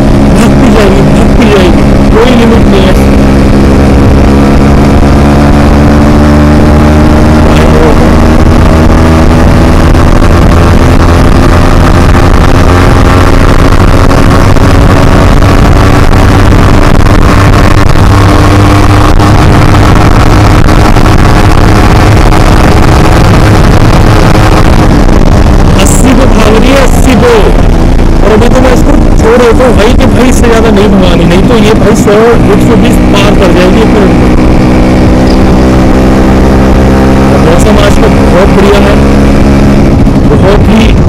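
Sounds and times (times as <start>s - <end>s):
motorcycle engine droning: 0.0s - 41.0s.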